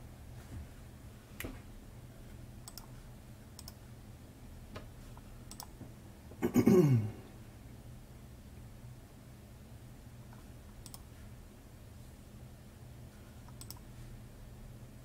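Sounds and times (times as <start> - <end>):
low steady hum: 0.0 - 15.0
computer mouse clicks: 2.6 - 3.0, 3.6 - 3.8, 5.1 - 5.8, 10.3 - 11.1, 13.4 - 13.9.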